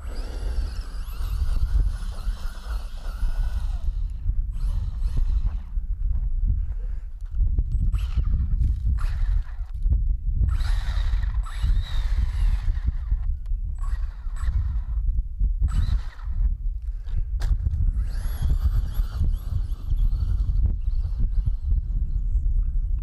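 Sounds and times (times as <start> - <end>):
electric motor whining: 0.0 - 5.8, 10.5 - 15.0, 17.5 - 22.3.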